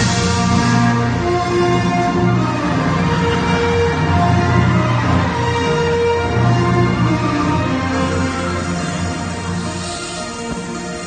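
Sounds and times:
music with long held notes: 0.0 - 11.0.

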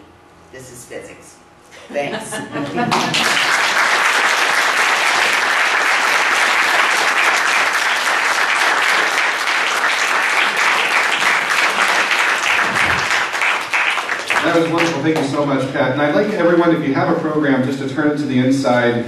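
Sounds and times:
audience applauding: 2.8 - 15.4.

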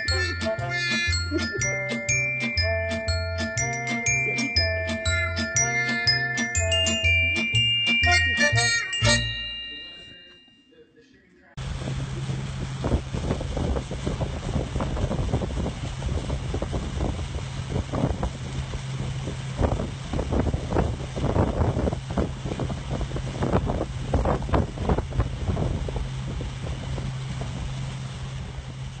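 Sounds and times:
motorboat engine humming: 0.0 - 9.7, 11.6 - 29.0
wind buffeting microphone: 11.6 - 29.0.

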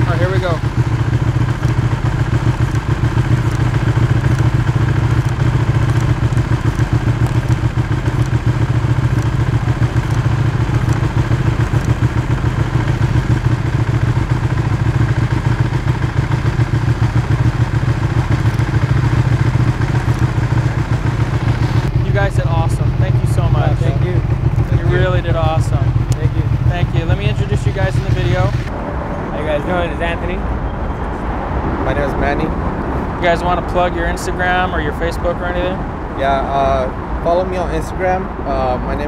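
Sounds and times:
motorcycle engine idling: 0.0 - 28.8.

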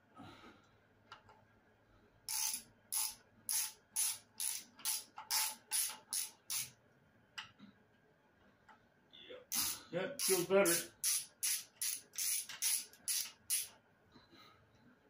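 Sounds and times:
hand ratchet clicking: 2.3 - 6.7, 9.5 - 13.7.

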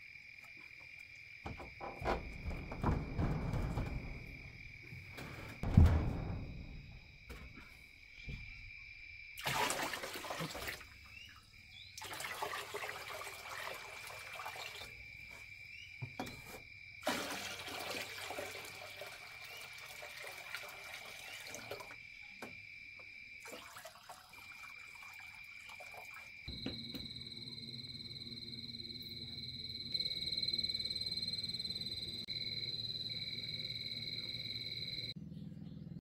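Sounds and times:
water splashing: 9.4 - 11.2, 23.4 - 26.3.

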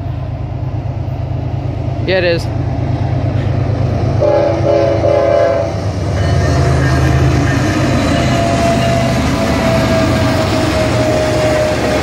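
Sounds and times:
locomotive engine rumble: 0.0 - 12.0
train air horn chord: 4.2 - 6.6.

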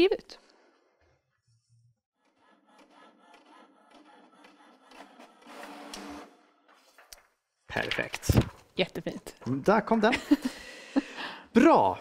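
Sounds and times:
inkjet printer printing: 2.3 - 6.5.

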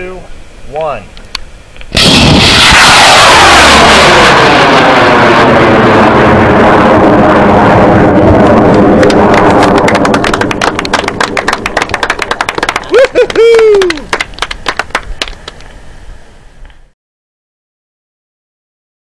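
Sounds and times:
rocket motor roaring: 1.9 - 12.2.

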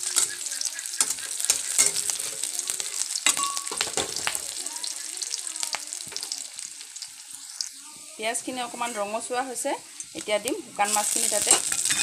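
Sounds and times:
steel spatula scraping pan: 0.0 - 2.5, 8.6 - 10.1, 10.8 - 12.0
onions sizzling in oil: 0.0 - 12.0.

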